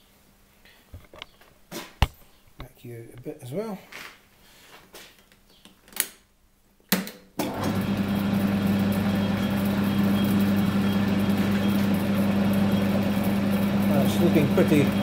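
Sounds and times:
lathe motor humming: 7.5s - 15.0s.

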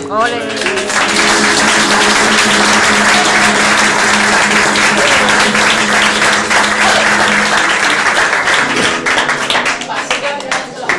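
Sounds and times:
audience applauding: 0.4s - 10.9s.

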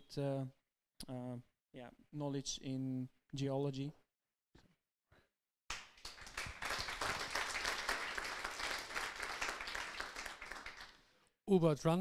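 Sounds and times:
group applauding: 5.7s - 11.1s.

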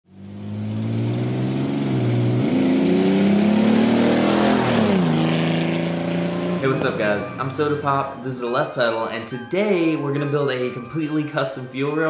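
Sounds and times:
car engine driving past: 0.1s - 8.2s.

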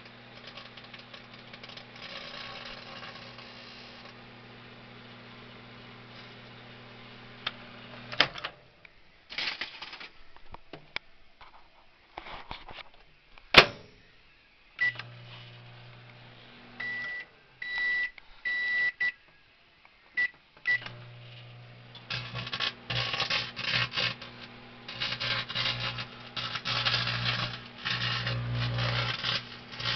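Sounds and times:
foil arcing crackling: 0.0s - 4.2s, 21.6s - 29.9s
microwave humming: 0.0s - 8.5s, 14.8s - 19.1s, 20.2s - 29.9s
keypad beeps: 16.8s - 19.2s.

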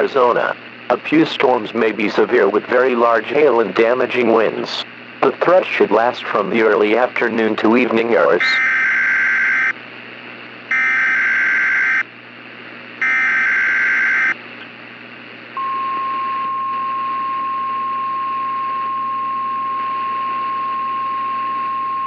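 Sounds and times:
radio hiss: 0.0s - 8.7s
harsh digital data bursts: 8.4s - 9.8s, 10.7s - 12.0s, 13.0s - 14.4s
steady warning alarm tone: 8.4s - 9.8s, 10.7s - 12.1s, 13.0s - 14.4s.

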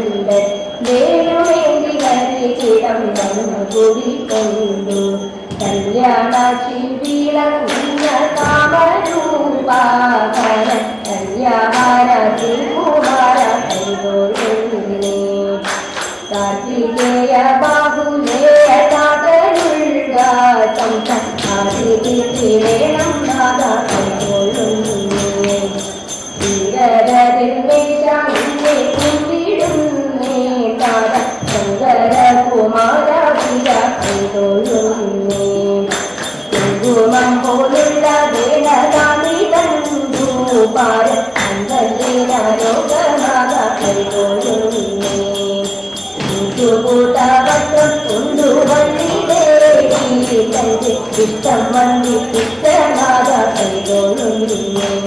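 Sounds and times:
women singing into a microphone: 0.0s - 55.0s
sharp hand claps: 15.6s - 16.3s, 35.9s - 36.8s.

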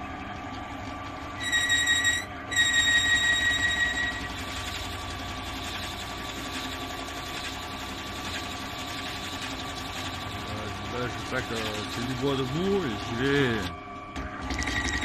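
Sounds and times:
drill press motor drone: 0.0s - 15.0s
high-pitched whistling tone: 1.4s - 4.4s.

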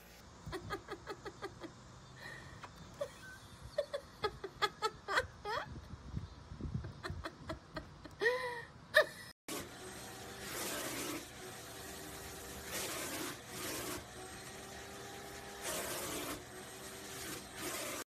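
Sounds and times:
vacuum cleaner running: 9.5s - 18.0s.

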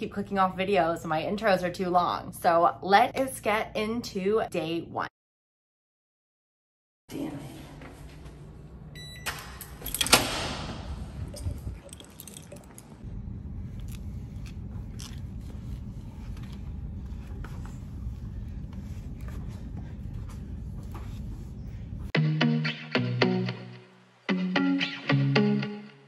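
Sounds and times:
low room hum: 7.1s - 22.1s.

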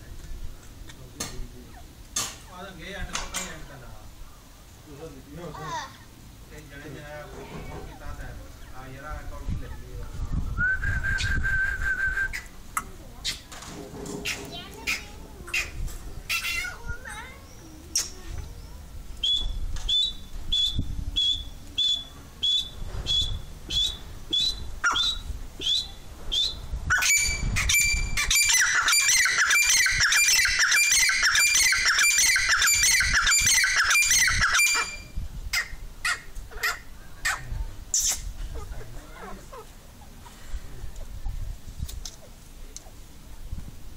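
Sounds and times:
partridges calling: 14.2s - 16.8s, 17.4s - 40.4s.

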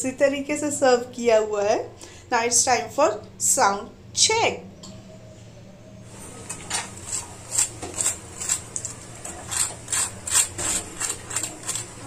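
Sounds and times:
fried pastry crunching and crackling: 6.6s - 12.0s.

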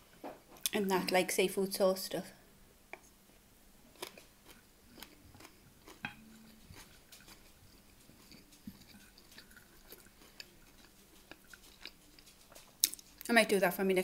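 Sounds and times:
soft chewing: 2.9s - 13.5s.

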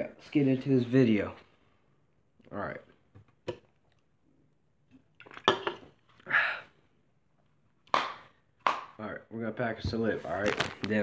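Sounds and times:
tin can clicks and knocks: 5.2s - 5.9s.

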